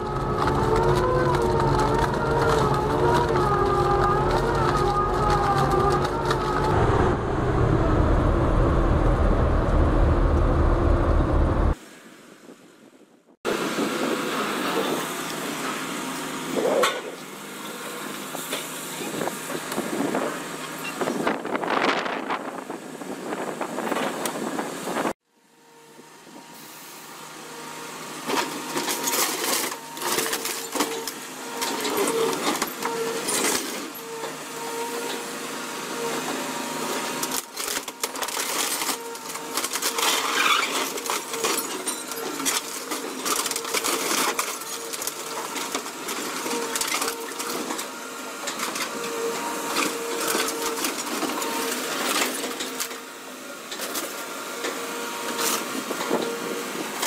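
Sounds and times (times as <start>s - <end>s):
metal crunching and tearing: 0.0s - 6.8s, 37.2s - 47.7s
excavator machine tone: 0.0s - 11.8s.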